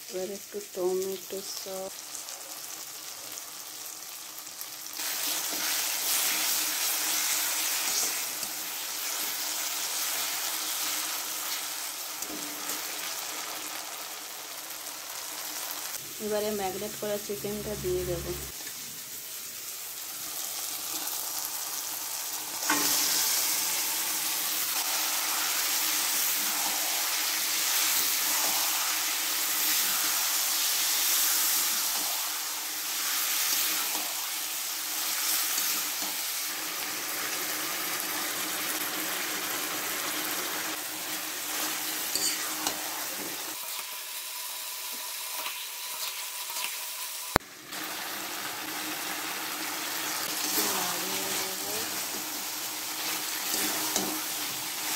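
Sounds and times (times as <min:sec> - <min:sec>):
chicken sizzling in hot oil: 0:00.0 - 0:54.9
stirring in a pan: 0:41.0 - 0:43.6, 0:50.0 - 0:54.9.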